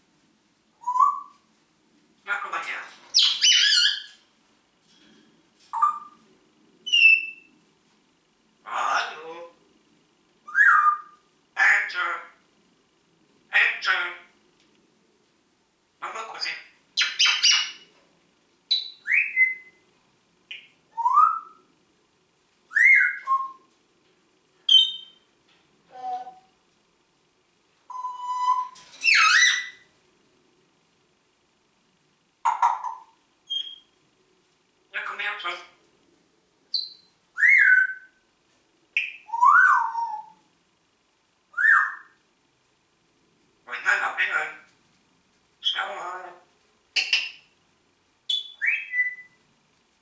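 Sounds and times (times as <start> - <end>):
parrot whistled calls: 0.8 - 1.3, 3.1 - 4.1, 6.9 - 7.5, 10.5 - 11.2, 18.7 - 19.8, 20.5 - 21.6, 22.7 - 23.6, 24.7 - 25.2, 27.9 - 29.9, 32.7 - 33.9, 36.7 - 38.2, 39.0 - 40.4, 41.5 - 42.2, 48.3 - 49.4.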